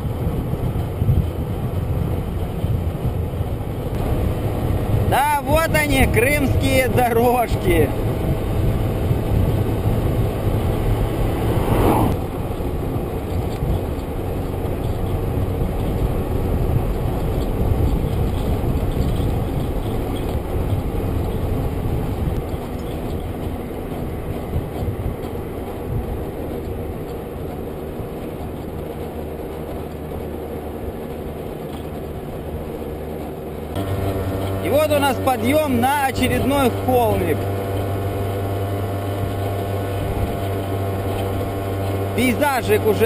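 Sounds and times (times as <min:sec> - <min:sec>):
scooter engine running: 0:00.0 - 0:43.0
wind rushing over microphone: 0:00.0 - 0:43.0
car passing: 0:03.9 - 0:17.6.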